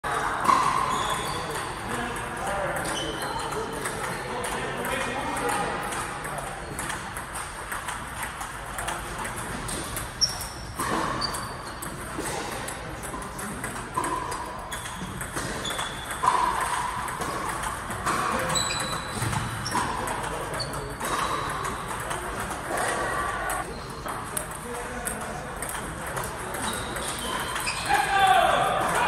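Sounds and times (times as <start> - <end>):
short high squeaks: 10.2 - 11.9, 14.7 - 16.4, 18.4 - 19.9, 26.6 - 28.0.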